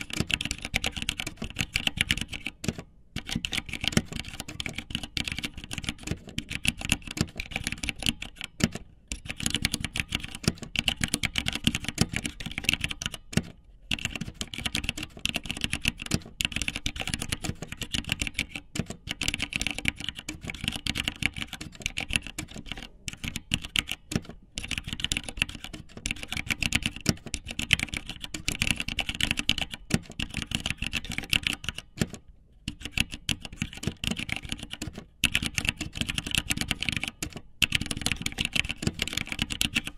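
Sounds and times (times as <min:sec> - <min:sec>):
rapid irregular clicking: 0:00.0 - 0:39.9.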